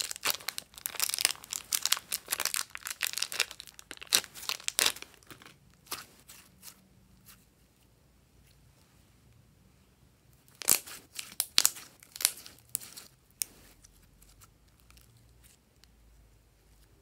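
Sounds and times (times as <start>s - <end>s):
slime crackling and popping: 0.0s - 6.0s, 10.5s - 13.1s.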